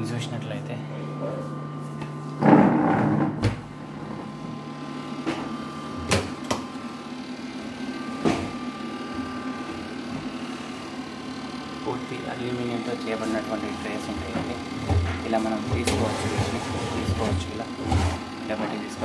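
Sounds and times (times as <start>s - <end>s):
fans humming: 0.0s - 19.0s
door scraping open: 2.4s - 3.4s.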